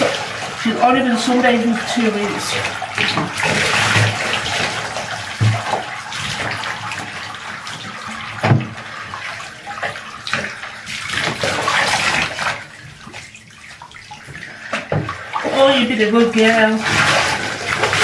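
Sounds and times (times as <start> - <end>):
water splashing over dog: 0.0 - 18.0
knock: 5.4 - 5.7, 8.4 - 8.7.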